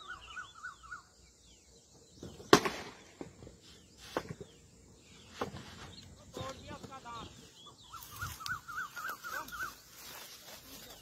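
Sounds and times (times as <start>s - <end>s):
sharp loud crack: 2.5s - 3.1s
bird warbling: 7.5s - 10.0s.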